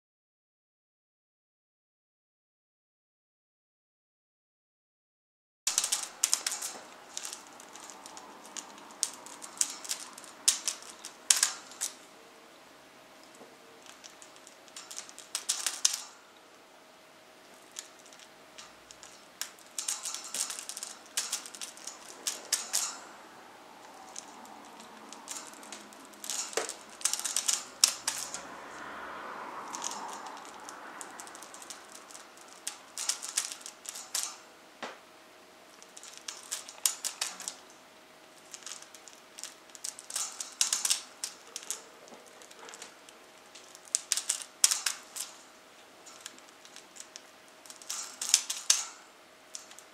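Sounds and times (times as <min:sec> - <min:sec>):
metal chain links clinking: 0:05.7 - 0:12.0, 0:13.8 - 0:16.3, 0:17.6 - 0:28.9, 0:29.6 - 0:34.5, 0:35.7 - 0:37.8, 0:38.4 - 0:49.9.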